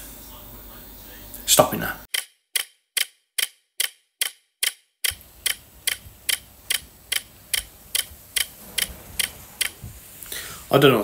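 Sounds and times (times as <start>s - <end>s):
clock ticking: 2.1s - 9.8s.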